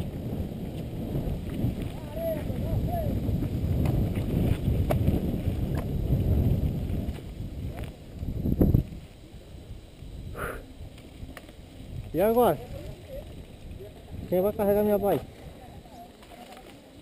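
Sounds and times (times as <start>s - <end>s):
bike rattling over dirt trail: 0.0s - 17.0s
wind rumble on microphone: 0.0s - 17.0s
sharp clicks from bumps: 3.4s - 5.9s, 10.9s - 12.1s.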